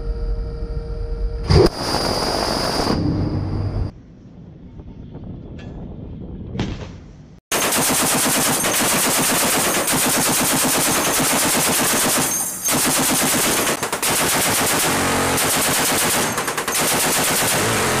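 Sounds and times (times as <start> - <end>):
heavy machine gun firing bursts: 7.5 - 18.0.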